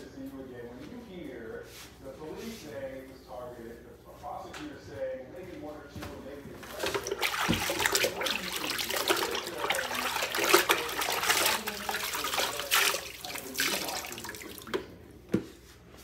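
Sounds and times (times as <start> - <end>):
tap water splashing in sink: 6.6 - 15.4.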